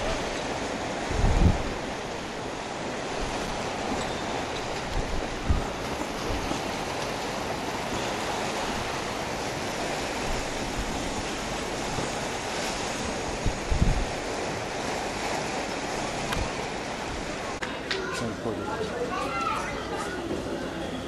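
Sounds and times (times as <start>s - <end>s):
wind on the microphone: 0.0s - 2.4s, 3.0s - 6.9s, 8.3s - 17.6s
wind buffeting thumps: 0.9s - 17.6s.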